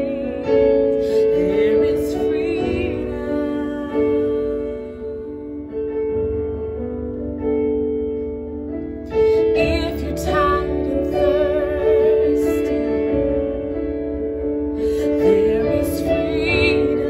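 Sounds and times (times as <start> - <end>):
woman singing worship song: 0.0 - 5.7, 9.2 - 13.4, 14.8 - 17.0.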